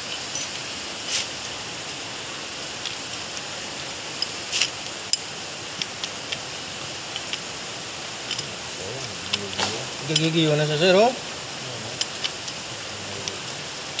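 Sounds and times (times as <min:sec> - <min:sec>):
steady hiss: 0:00.0 - 0:14.0.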